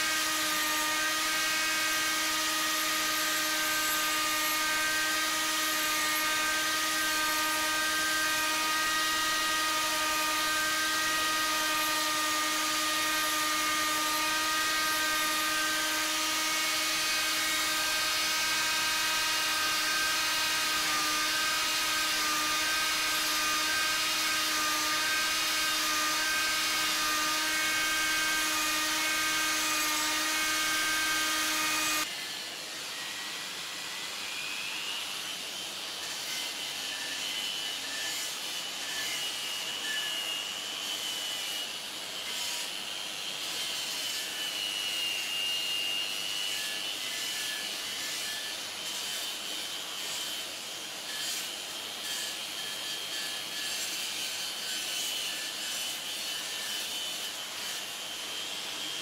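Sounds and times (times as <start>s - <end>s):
abrasive sanding wood: 0.0s - 32.1s
mini grinder motor whine: 0.0s - 35.4s.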